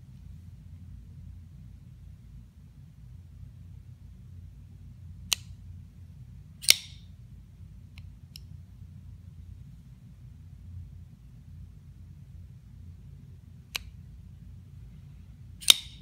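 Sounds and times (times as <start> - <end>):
folding knife blade clicking open: 6.6 - 7.0, 15.6 - 16.0.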